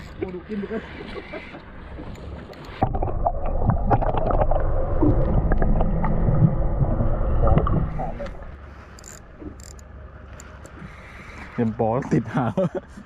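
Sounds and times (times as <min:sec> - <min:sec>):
muffled underwater rumble: 0:02.7 - 0:08.8
sharp clicks and ticks: 0:09.0 - 0:10.8.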